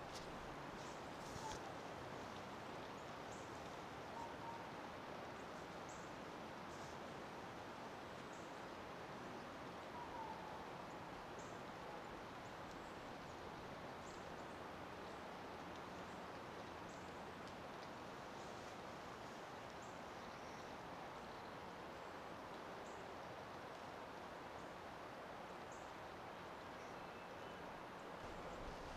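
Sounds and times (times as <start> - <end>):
steady hiss: 10.6 - 28.9.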